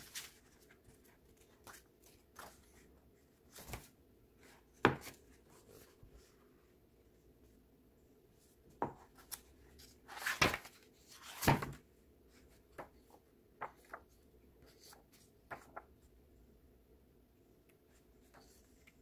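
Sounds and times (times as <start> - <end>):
book pages turning: 0.0 - 2.8, 9.1 - 11.8.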